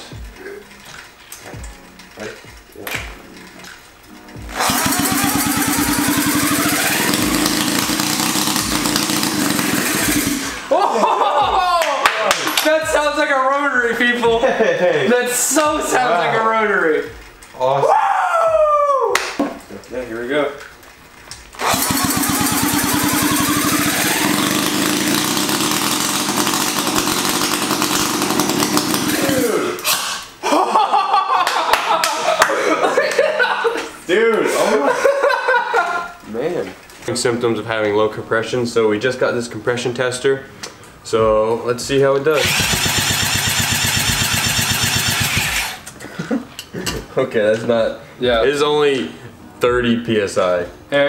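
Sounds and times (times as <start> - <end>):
cordless drill spinning engine: 4.5 - 10.6, 21.6 - 30.3, 42.4 - 45.9
rotary engine running with whine: 4.6 - 10.6, 21.6 - 29.4, 42.4 - 45.8.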